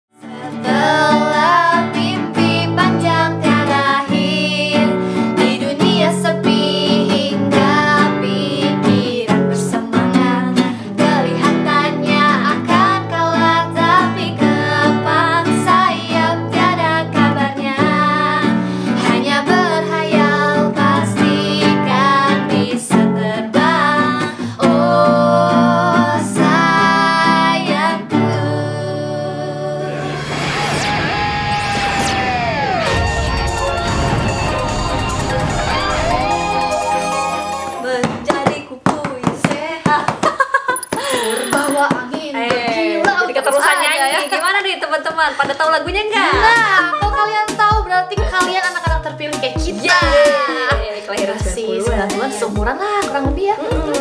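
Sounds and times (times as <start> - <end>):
strummed acoustic guitar: 0.2 - 28.6
woman singing: 0.2 - 30.0, 37.8 - 40.2, 45.4 - 54.0.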